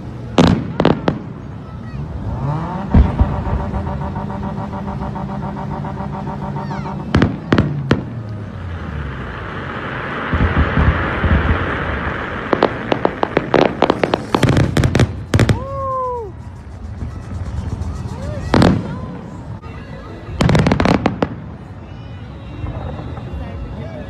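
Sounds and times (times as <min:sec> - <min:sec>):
fireworks bangs and pops: 0:00.0 - 0:01.8, 0:02.8 - 0:19.6, 0:20.2 - 0:21.8
fireworks crackling hiss: 0:02.9 - 0:23.4
falling firework whistle: 0:09.0 - 0:19.1.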